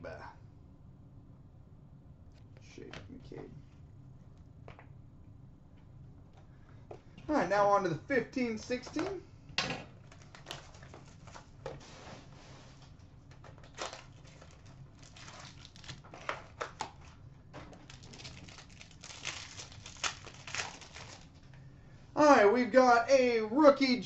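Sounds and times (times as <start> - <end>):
foil wrapper crinkling and tearing: 13.4 - 21.5.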